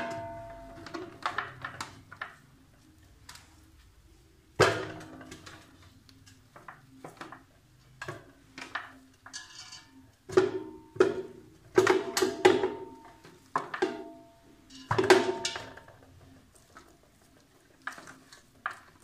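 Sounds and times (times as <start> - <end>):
meat and bone clanking on metal: 8.6 - 19.0.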